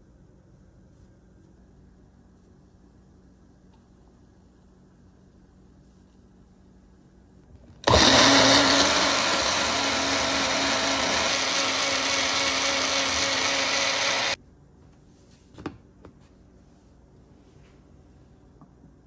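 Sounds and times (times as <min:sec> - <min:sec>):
blender running: 0:07.8 - 0:14.4.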